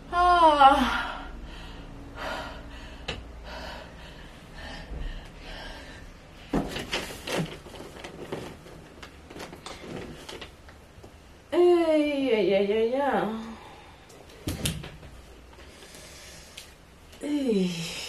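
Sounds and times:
woman breathing hard and gasping: 0.8 - 6.3.

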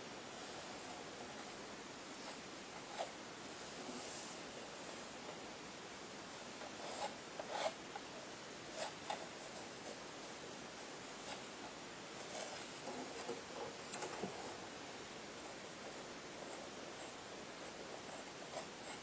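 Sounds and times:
faint steady hiss: 0.0 - 19.0
palette knife scraping paint: 6.6 - 8.1.

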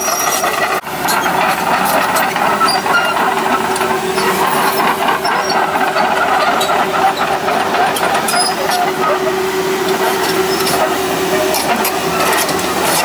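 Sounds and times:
crawler tracks clattering: 0.0 - 13.0
excavator diesel engine under load: 0.0 - 13.0.

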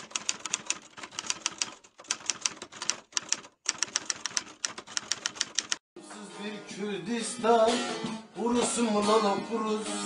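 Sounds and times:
typewriter keystrokes clacking: 0.0 - 5.8.

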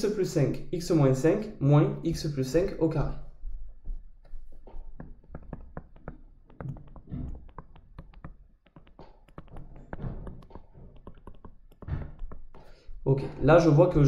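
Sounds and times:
stylus tapping on touchscreen: 3.4 - 13.0.

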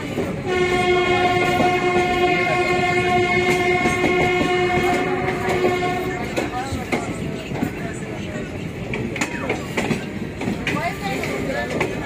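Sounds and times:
railway coaches rumbling past: 0.0 - 12.0
train horn blast: 0.4 - 6.5.

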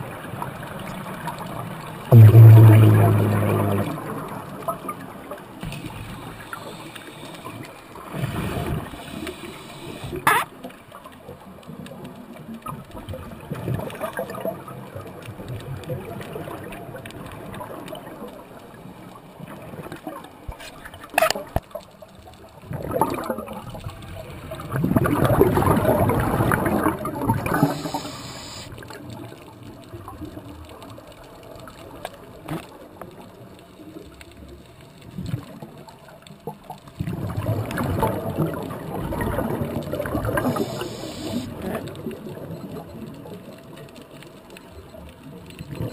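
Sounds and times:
scuba regulator bubbling underwater: 2.1 - 10.2, 24.5 - 28.7, 37.0 - 43.2.

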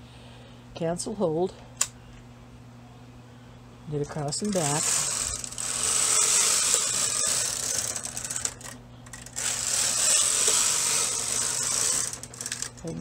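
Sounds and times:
knitting machine carriage rattling swish: 9.4 - 13.0.

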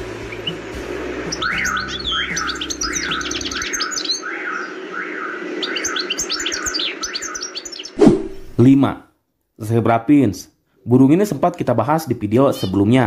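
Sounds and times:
goldfinch twittering chirps: 0.0 - 8.0
bird rising-and-falling note: 0.0 - 8.6.

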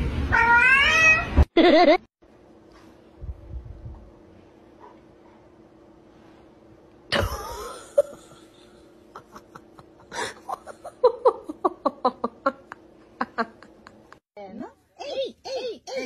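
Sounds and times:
person laughing: 1.6 - 2.1, 7.1 - 14.2
steady hum: 2.2 - 16.0.

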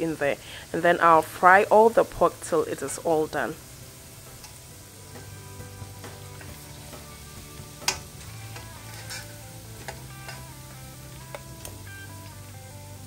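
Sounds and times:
meat sizzling in hot oil: 0.0 - 13.0
soft background music: 0.0 - 13.0
spatula clinking against wok: 7.8 - 10.5.

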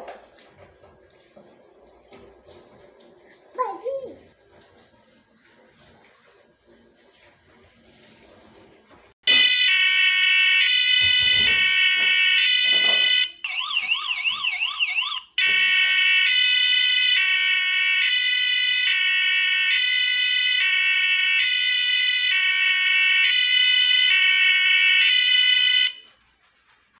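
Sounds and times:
electronic police siren: 9.2 - 26.0.

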